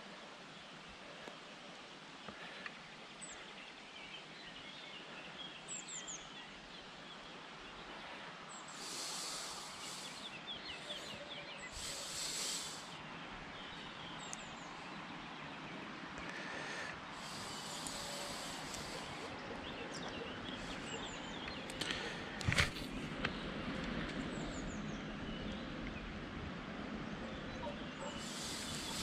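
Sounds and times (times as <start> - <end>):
steady outdoor hiss: 0.0 - 29.0
small birds chirping: 0.5 - 26.1, 27.1 - 29.0
high hissing bursts: 8.7 - 13.0, 17.2 - 19.4, 28.2 - 29.0.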